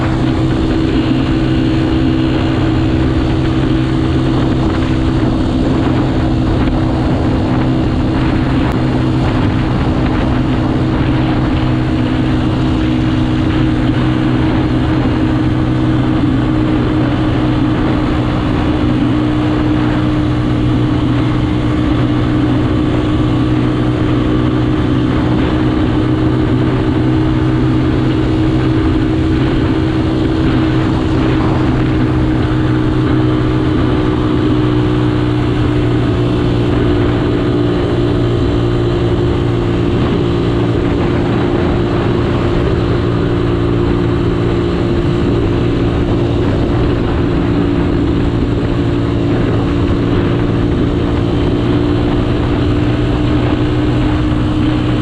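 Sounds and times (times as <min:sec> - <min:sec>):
motorcycle engine cruising: 0:00.0 - 0:55.0
wind and road noise: 0:00.0 - 0:55.0.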